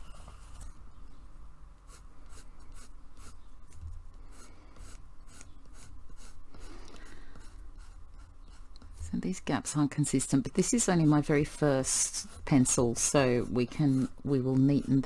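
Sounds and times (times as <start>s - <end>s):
pencil scratching on paper: 1.9s - 3.4s, 4.2s - 9.4s, 10.0s - 15.0s.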